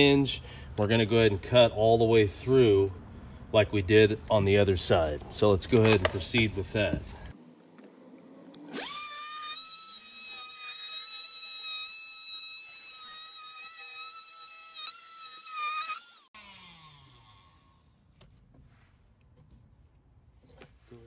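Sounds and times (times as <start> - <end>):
multi-tool cutting wood whine: 5.8 - 18.1.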